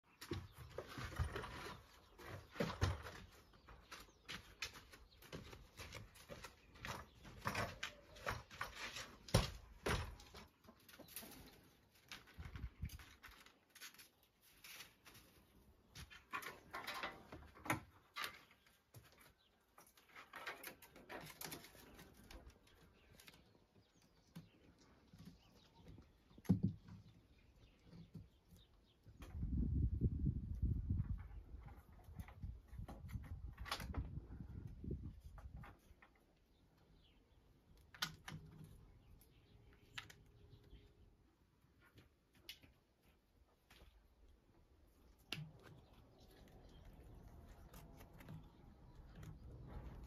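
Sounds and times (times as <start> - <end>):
wooden ladder knocking and creaking: 0.0 - 23.3, 24.4 - 27.3, 30.4 - 36.3
cord rustling: 44.9 - 50.0.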